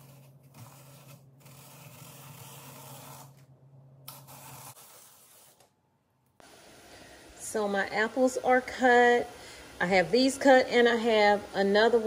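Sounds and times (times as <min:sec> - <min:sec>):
apple peeler blade scraping peel: 0:00.0 - 0:03.4.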